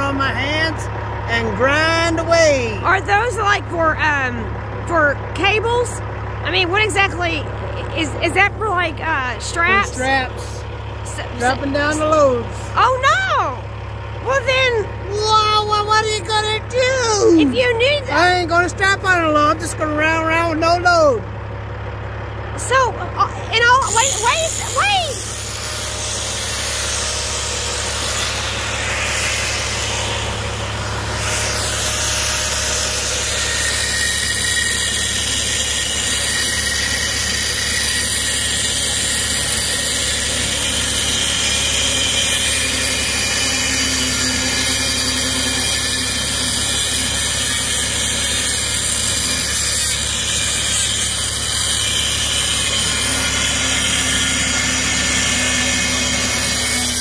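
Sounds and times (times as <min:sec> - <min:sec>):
angle grinder cutting metal: 0:06.5 - 0:21.0, 0:22.6 - 0:57.0.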